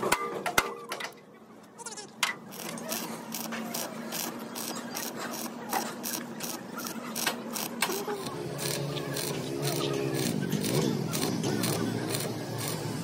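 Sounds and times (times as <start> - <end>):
welding arc crackling: 2.5 - 13.0.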